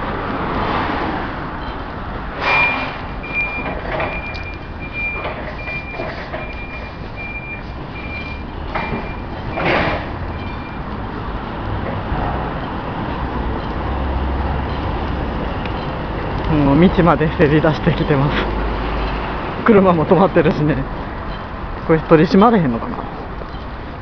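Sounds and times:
street traffic: 0:00.0 - 0:24.0
reversing warning beeps: 0:01.6 - 0:11.6, 0:12.4 - 0:16.0, 0:21.2 - 0:21.6.

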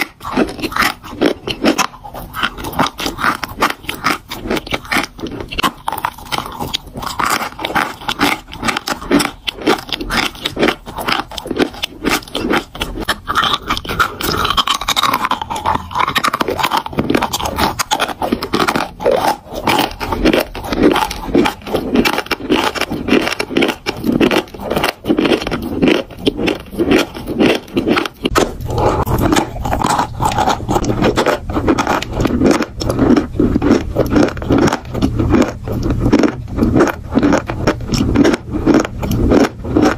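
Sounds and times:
chewing crunchy chalk: 0:00.0 - 0:39.9.

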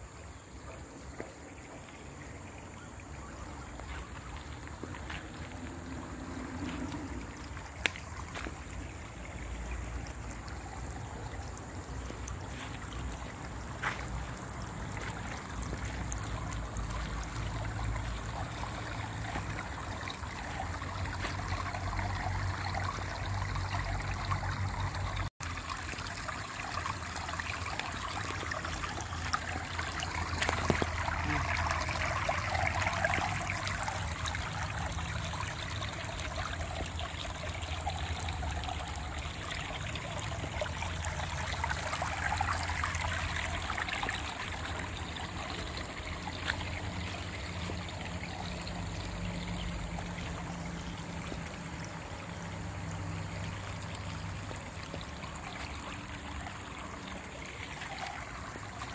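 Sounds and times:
water trickling in a channel: 0:00.0 - 0:58.9.

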